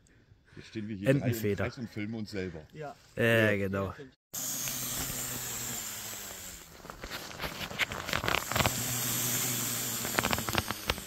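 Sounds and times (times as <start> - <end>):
fabric crinkling: 6.7 - 8.8.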